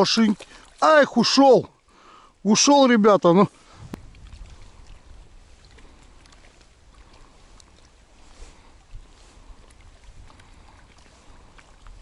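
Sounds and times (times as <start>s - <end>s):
water lapping at shore: 0.0s - 12.0s
wind rumbling on microphone: 3.6s - 12.0s.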